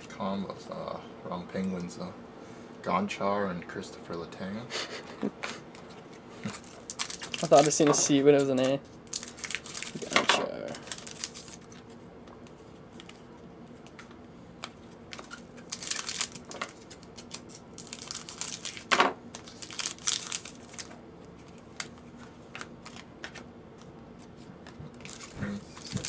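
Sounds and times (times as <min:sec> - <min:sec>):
foil wrappers crinkling: 0:06.5 - 0:14.0, 0:14.6 - 0:23.4, 0:24.9 - 0:26.0.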